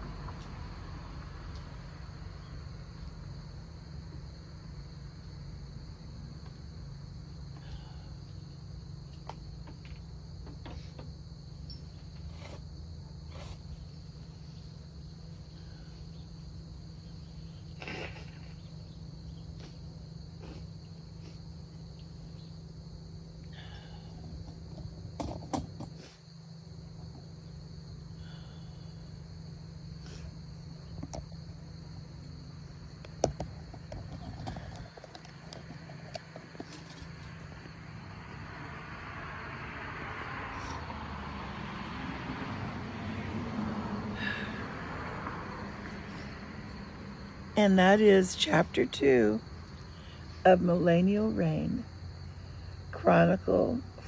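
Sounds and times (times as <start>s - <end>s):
insects trilling: 0.0s - 54.0s
low steady hum: 44.1s - 54.0s.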